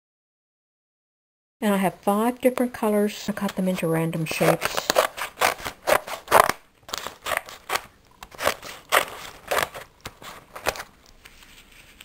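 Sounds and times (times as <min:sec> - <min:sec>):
scissors snipping paper: 0:03.4 - 0:11.2.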